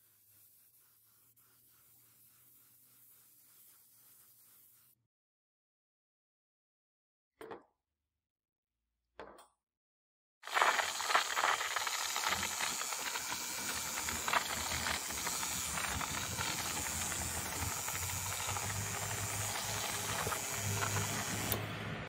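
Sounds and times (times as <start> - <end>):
paint spray gun hissing: 0.0 - 5.0, 10.4 - 21.6.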